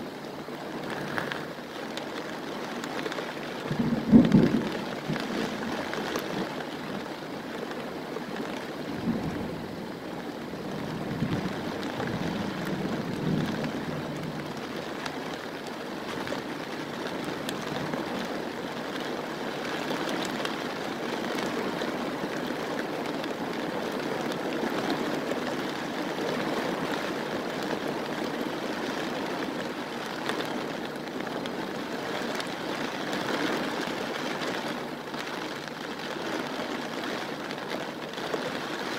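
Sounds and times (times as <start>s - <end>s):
heavy rain pouring: 0.0s - 38.9s
thunder rumbling: 3.7s - 6.5s, 10.7s - 14.6s.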